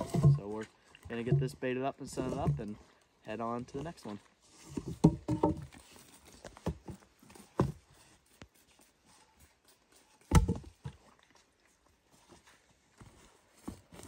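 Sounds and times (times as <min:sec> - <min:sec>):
wooden logs knocking together: 0:00.0 - 0:02.8, 0:04.7 - 0:07.9, 0:10.2 - 0:11.0.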